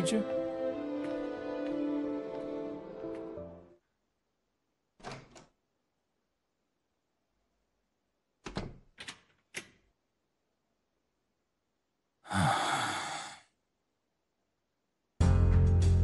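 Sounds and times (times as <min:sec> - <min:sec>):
person sighing: 0:12.2 - 0:13.6.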